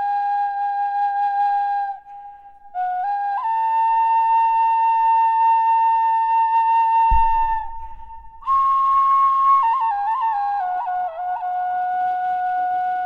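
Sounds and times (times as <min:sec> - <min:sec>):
slow flute melody: 0:00.0 - 0:13.0
low thump and rumble: 0:07.1 - 0:10.3.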